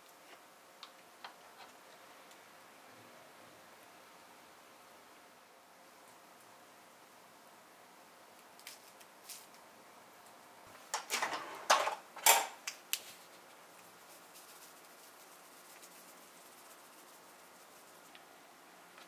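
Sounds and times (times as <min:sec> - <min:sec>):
skewers clattering on metal tray: 0:10.9 - 0:12.6.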